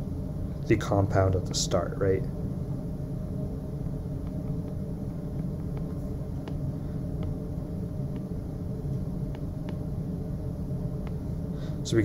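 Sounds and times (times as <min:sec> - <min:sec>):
low room hum: 0:00.0 - 0:12.0
stylus tapping on screen: 0:03.8 - 0:07.4, 0:08.1 - 0:08.4, 0:09.3 - 0:09.9, 0:11.0 - 0:11.2.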